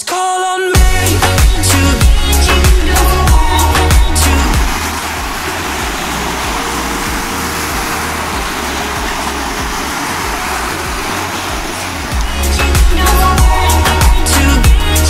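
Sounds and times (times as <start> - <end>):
low rumble: 2.0 - 14.9
waves washing over pebbles: 2.0 - 15.0.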